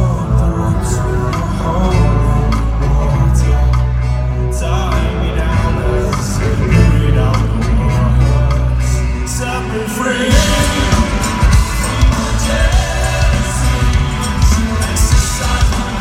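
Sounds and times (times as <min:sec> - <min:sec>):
heavy bass: 0:00.0 - 0:16.0
man singing lead vocal: 0:00.0 - 0:16.0
pounding drum beat: 0:10.3 - 0:16.0.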